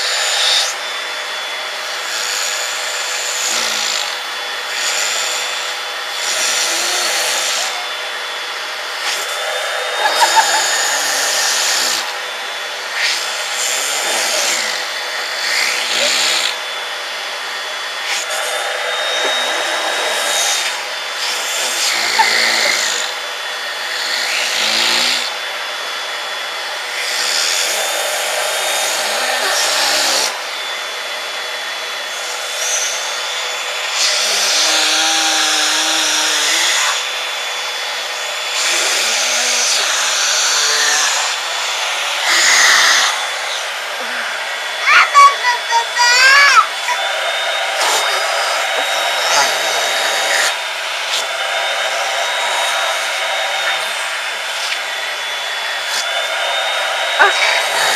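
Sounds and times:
vacuum cleaner motor whine: 0.0s - 57.9s
child humming: 6.6s - 8.0s, 21.3s - 23.0s, 28.9s - 30.4s, 42.2s - 43.2s, 43.9s - 50.6s, 57.2s - 57.9s.

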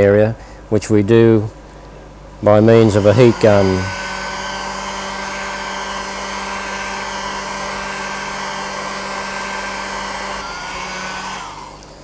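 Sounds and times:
heat gun blowing: 2.5s - 12.0s.

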